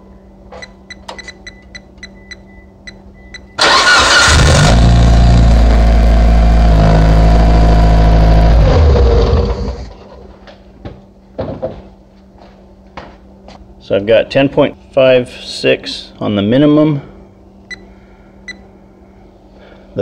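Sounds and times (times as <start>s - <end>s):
car engine starting and running: 3.6s - 10.2s.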